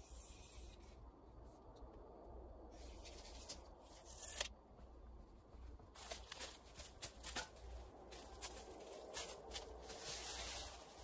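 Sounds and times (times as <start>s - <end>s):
footsteps crunching through dry leaves: 5.9s - 11.0s
twigs crackling and snapping: 5.9s - 11.0s.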